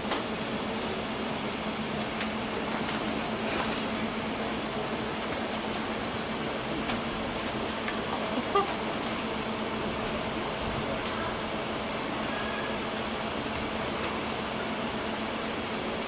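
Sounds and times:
ventilation fans whooshing: 0.0s - 16.0s.

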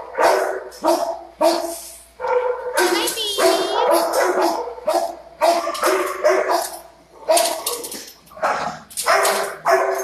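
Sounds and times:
dogs barking: 0.0s - 10.0s.

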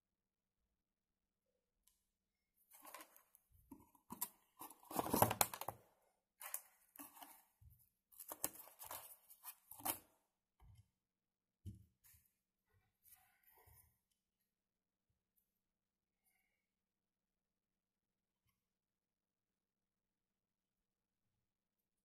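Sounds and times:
cardboard packaging rustling: 2.8s - 5.7s.

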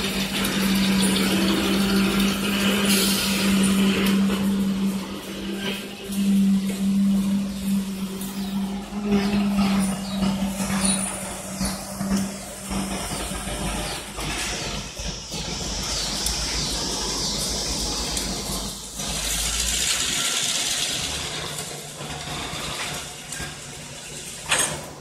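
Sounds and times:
freight train rumbling: 0.0s - 25.0s
wheels hissing on track: 0.0s - 25.0s.

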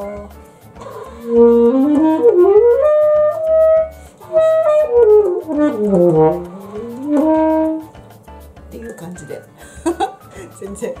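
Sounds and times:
alto saxophone melody: 1.0s - 8.0s.

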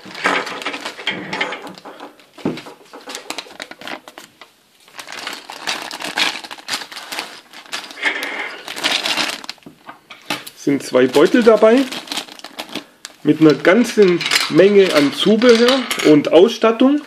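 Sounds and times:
plastic toy parts rattling: 0.0s - 4.3s, 5.0s - 9.6s, 10.2s - 16.6s
plastic bags crinkling: 0.0s - 17.0s.

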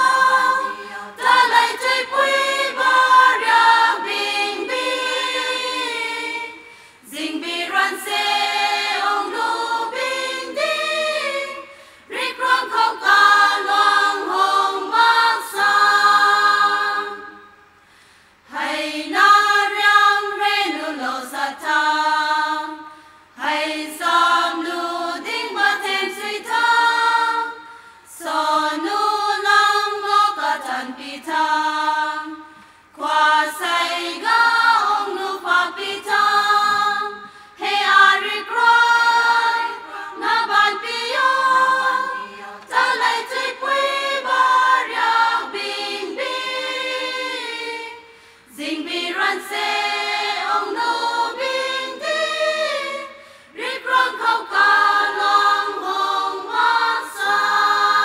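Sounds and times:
women's choir singing: 0.0s - 17.8s, 18.4s - 58.0s.

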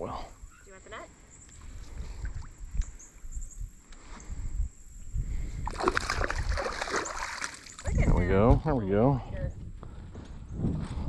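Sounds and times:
fish splashing at water surface: 5.6s - 7.9s.

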